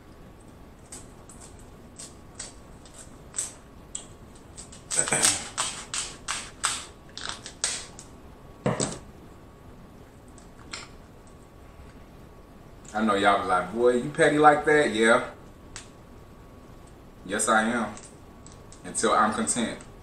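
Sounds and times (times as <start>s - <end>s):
crab shell cracking: 0.8s - 8.1s
crab shell snipped with shears: 4.6s - 8.0s.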